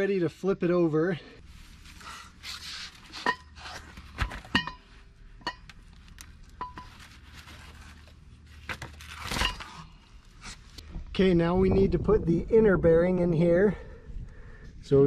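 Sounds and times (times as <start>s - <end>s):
paper rustling: 6.8s - 9.7s.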